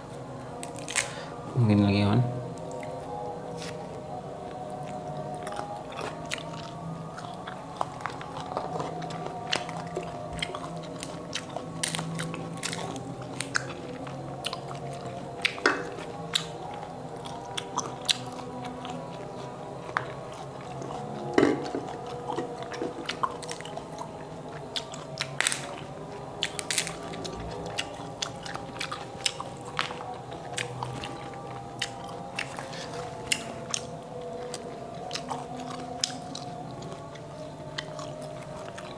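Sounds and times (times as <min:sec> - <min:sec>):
chewing and crunching: 0:00.0 - 0:01.4, 0:02.5 - 0:38.9
fruit skins cracking: 0:00.6 - 0:01.2, 0:07.8 - 0:14.7, 0:25.1 - 0:25.8, 0:26.4 - 0:27.4.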